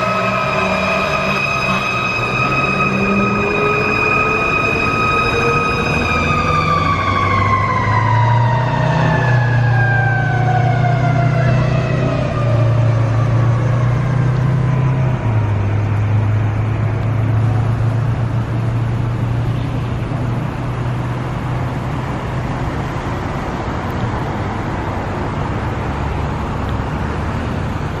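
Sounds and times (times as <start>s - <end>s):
fire engine siren winding down: 0.0s - 16.7s
road noise: 0.0s - 28.0s
truck engine drone: 0.0s - 28.0s.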